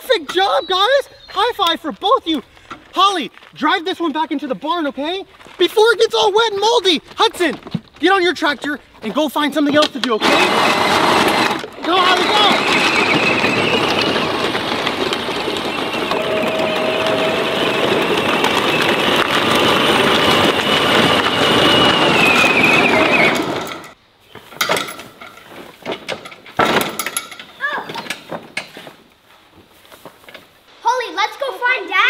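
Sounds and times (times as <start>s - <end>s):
plastic wheels crunching on gravel: 0.1s - 24.5s, 25.1s - 26.5s
toy tractor motor whine: 10.0s - 24.0s.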